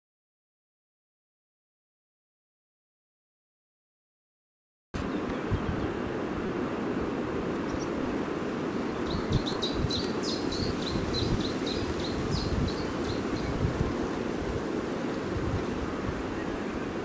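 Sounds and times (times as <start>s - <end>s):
wind rumbling on microphone: 5.0s - 17.0s
small bird chirping: 8.9s - 13.8s.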